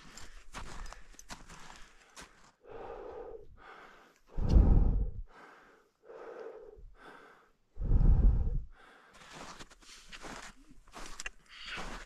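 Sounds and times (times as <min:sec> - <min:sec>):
heavy laboured breathing: 0:00.0 - 0:10.4
breath blowing across microphone: 0:04.4 - 0:05.2.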